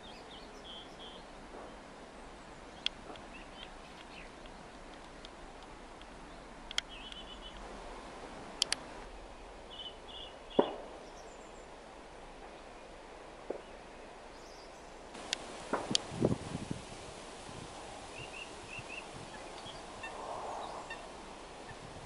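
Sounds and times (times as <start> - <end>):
steady hiss: 0.0 - 22.0
sharp clicks: 6.7 - 7.6, 8.6 - 8.8.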